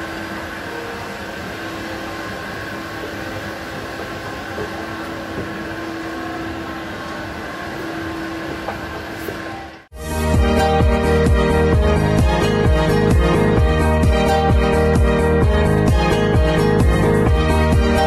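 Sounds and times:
escalator mechanical hum: 0:00.0 - 0:09.9.

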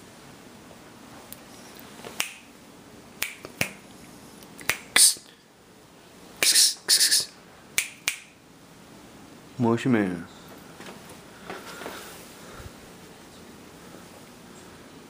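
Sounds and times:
short hissing bursts: 0:06.4 - 0:07.4
sharp clicks: 0:07.8 - 0:08.3.

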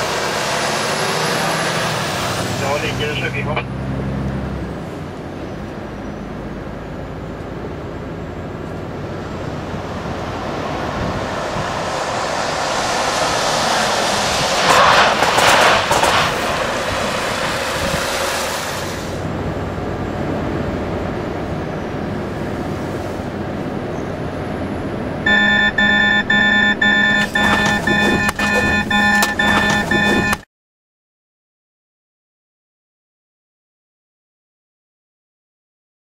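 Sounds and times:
vehicles driving past on wet road: 0:00.0 - 0:30.2
truck cab running noise: 0:13.0 - 0:30.4.

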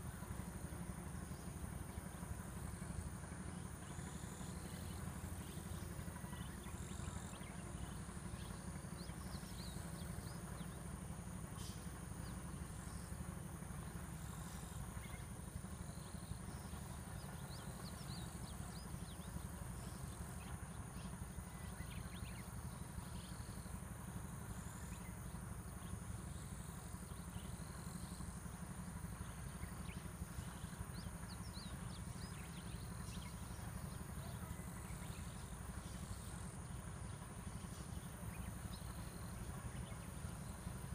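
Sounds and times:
high insect drone: 0:00.0 - 0:40.9.

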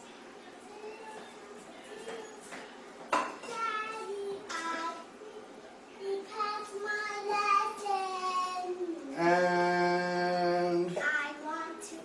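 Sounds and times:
child singing: 0:00.7 - 0:02.4, 0:03.4 - 0:05.4, 0:06.0 - 0:09.2, 0:10.7 - 0:12.0.

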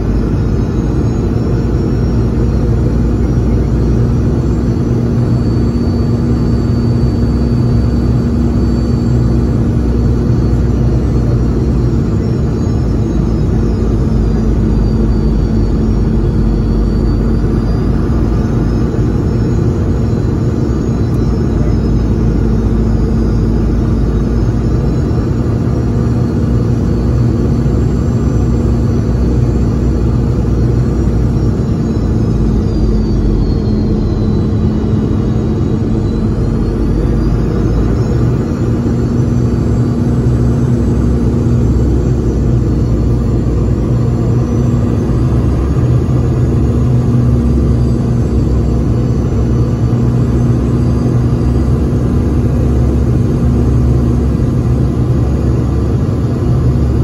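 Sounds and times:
airliner cabin rumble: 0:00.0 - 0:57.0
faint high whine: 0:00.0 - 0:57.0
steady low hum: 0:00.0 - 0:57.0.

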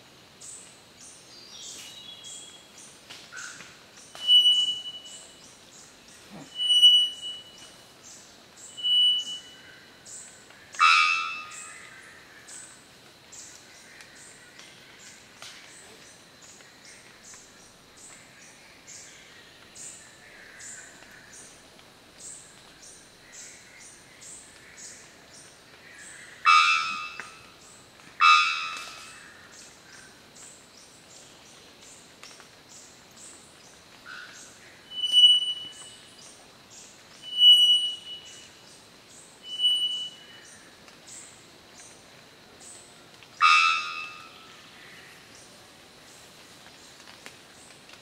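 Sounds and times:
insects chirping: 0:00.0 - 0:48.0
bellbird calling: 0:04.2 - 0:05.2, 0:06.5 - 0:07.7, 0:08.8 - 0:09.5, 0:26.5 - 0:27.3, 0:34.9 - 0:35.9, 0:37.3 - 0:38.4, 0:39.5 - 0:40.2, 0:43.4 - 0:44.4.

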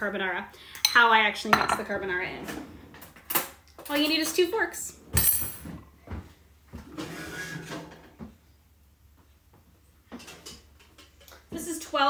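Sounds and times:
drawer or pot scraping: 0:06.8 - 0:08.2.

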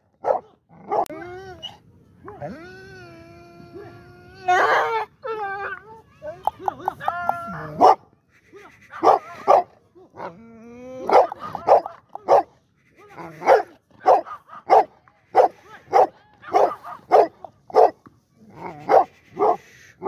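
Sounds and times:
dog barking: 0:00.2 - 0:01.1, 0:07.8 - 0:08.0, 0:09.0 - 0:09.7, 0:11.1 - 0:12.5, 0:13.4 - 0:18.0, 0:18.9 - 0:19.6.

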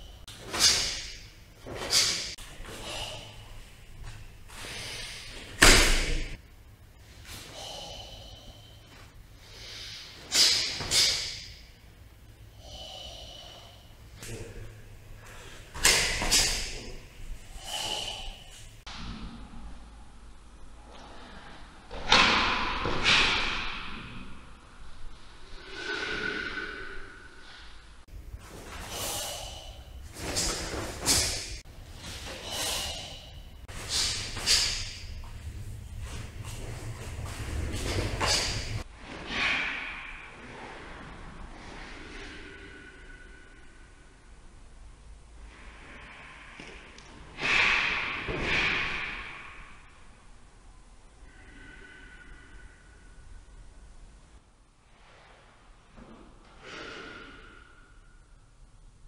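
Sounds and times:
sharp forceful exhalations: 0:00.0 - 0:03.7, 0:04.5 - 0:11.7, 0:15.2 - 0:18.9, 0:25.4 - 0:44.2, 0:45.5 - 0:49.9, 0:56.5 - 0:58.3
person breathing: 0:00.0 - 0:21.9, 0:23.4 - 0:44.6, 0:45.4 - 0:50.2, 0:51.0 - 0:54.2, 0:56.5 - 0:58.6.

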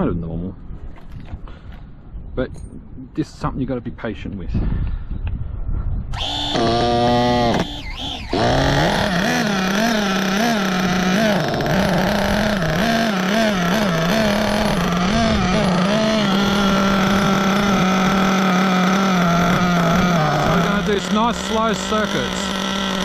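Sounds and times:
nitro rc engine running: 0:06.1 - 0:23.0.

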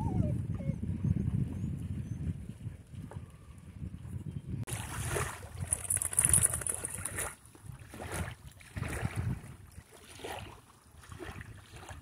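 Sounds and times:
wind buffeting microphone: 0:00.0 - 0:12.0
small ripples lapping at shore: 0:04.7 - 0:12.0.

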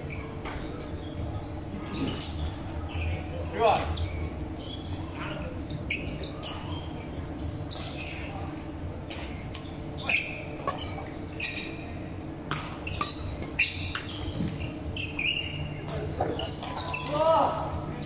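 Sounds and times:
low hall hum: 0:00.0 - 0:18.0
shoe squeaks on wooden floor: 0:01.8 - 0:05.1, 0:09.4 - 0:11.8, 0:12.8 - 0:17.2.

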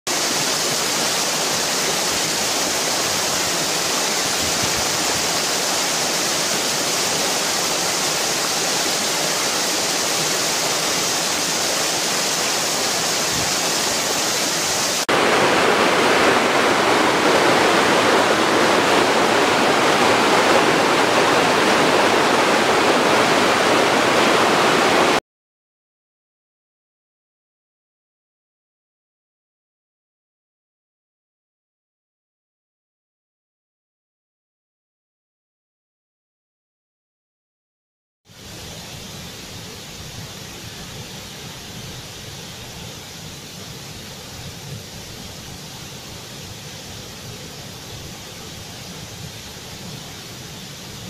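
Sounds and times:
waterfall rushing: 0:00.1 - 0:25.2, 0:38.3 - 0:51.0.

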